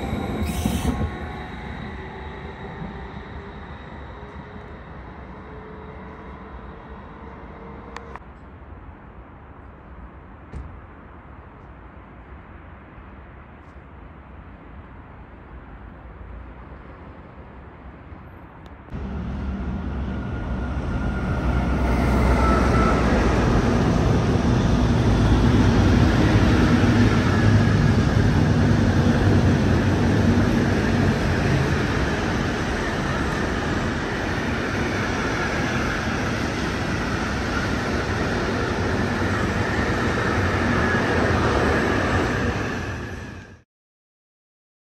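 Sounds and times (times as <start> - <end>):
high-pitched wheel squeal: 0.0 - 4.8, 20.2 - 23.4
freight train rumble and clatter: 0.0 - 9.4, 18.2 - 43.6.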